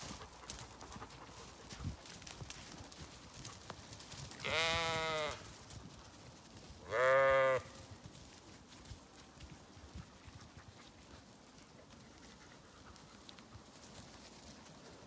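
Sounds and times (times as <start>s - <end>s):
sheep bleating: 4.4s - 5.4s, 6.8s - 7.8s.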